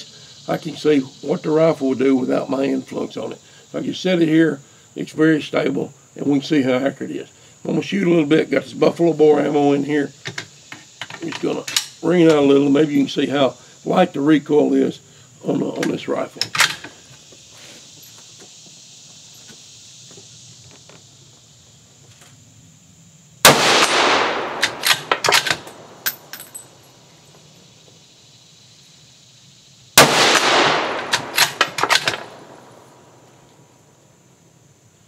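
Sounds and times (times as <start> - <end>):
rifle shots echoing: 23.4 - 26.1, 30.0 - 33.2
rifle bolt metallic clicks: 23.8 - 26.6, 30.4 - 32.3.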